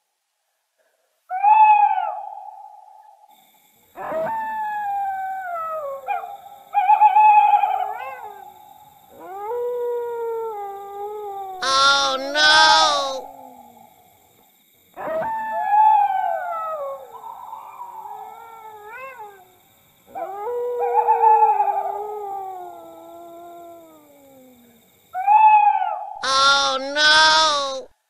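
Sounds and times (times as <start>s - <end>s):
dog howling: 9.2s - 13.8s, 20.2s - 27.9s.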